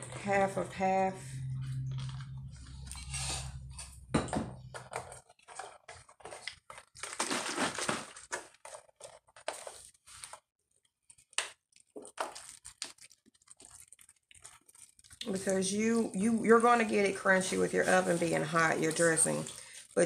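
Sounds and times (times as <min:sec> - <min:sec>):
plastic bottle crinkling: 0:04.6 - 0:20.0.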